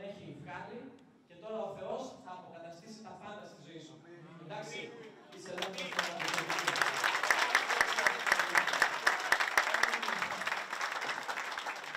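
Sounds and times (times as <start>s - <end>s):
crowd applauding: 5.4s - 11.9s.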